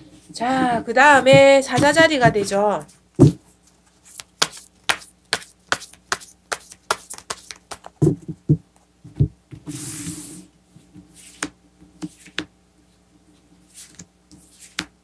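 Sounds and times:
cards shuffling with sharp clicks: 3.8s - 8.0s
cards sliding across cloth: 11.1s - 12.5s, 13.6s - 14.9s.

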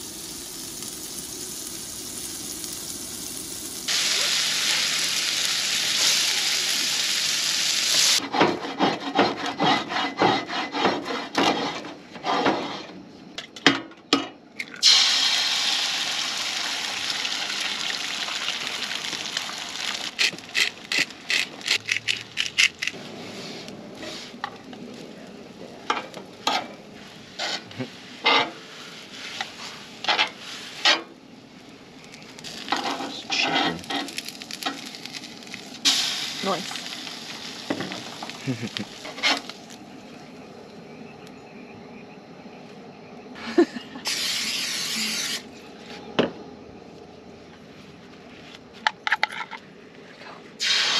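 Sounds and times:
egg frying: 0.0s - 8.2s, 14.7s - 23.0s, 33.8s - 39.8s
food sizzling on a griddle: 0.0s - 8.2s, 14.8s - 21.8s, 27.3s - 31.0s, 32.4s - 39.8s, 44.1s - 45.4s, 50.6s - 50.9s
metal spatula scraping griddle: 8.2s - 12.9s, 26.4s - 31.1s, 32.7s - 34.2s.

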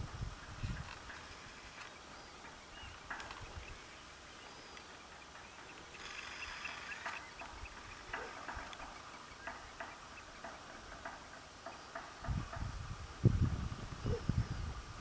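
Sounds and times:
wind on microphone: 0.0s - 1.8s, 12.2s - 15.0s
faint ticks or chirps: 4.4s - 10.6s.

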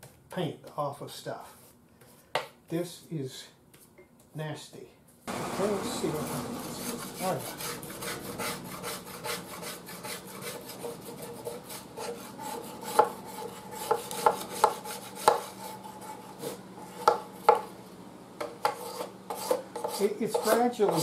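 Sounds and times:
scraper blade rasping on paint: 6.1s - 17.0s, 18.7s - 21.0s.

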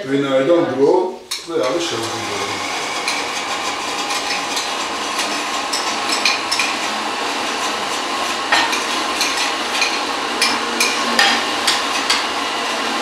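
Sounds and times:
spoon clinking in ceramic cup: 5.7s - 6.8s.

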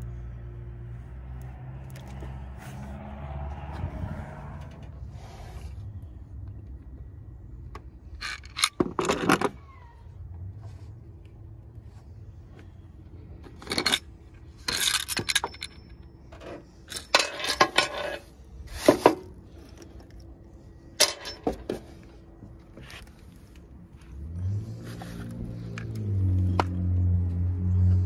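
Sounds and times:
metal clinks and knocks: 13.4s - 20.2s, 20.9s - 22.1s.

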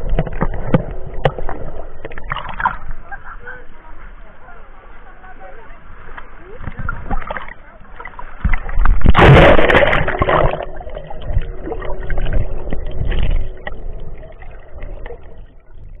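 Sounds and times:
underwater churning and gurgling: 0.0s - 3.4s, 6.4s - 16.0s
sea water splashing: 0.0s - 16.0s.

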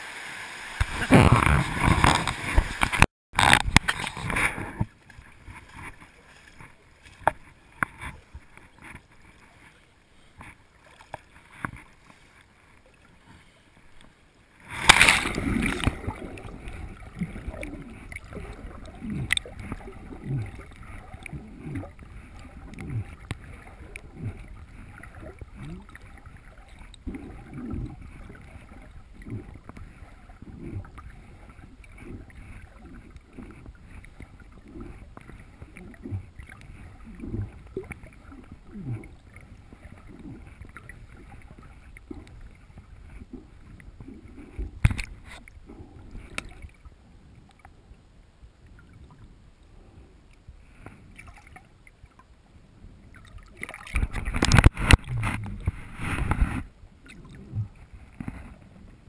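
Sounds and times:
splash into water: 0.0s - 4.7s, 14.7s - 18.4s
underwater swimming strokes: 0.0s - 47.9s, 48.6s - 59.0s.

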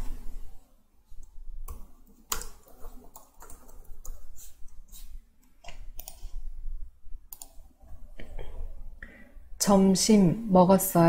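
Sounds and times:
keyboard keys clicking: 1.7s - 4.3s.

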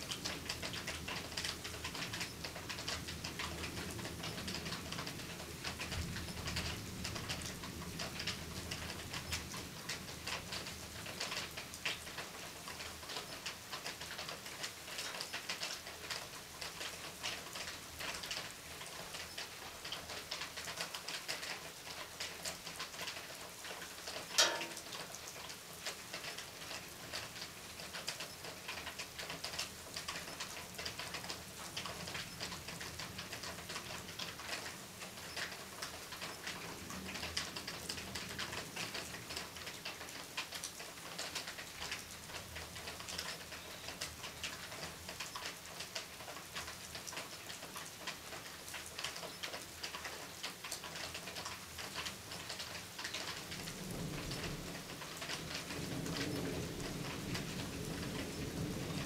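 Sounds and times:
rain falling: 0.0s - 59.0s.

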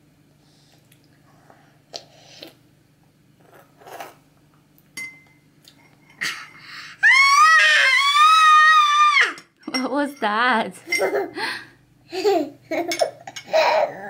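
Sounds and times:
metal spoon clinking on ceramic bowl: 5.0s - 5.4s.

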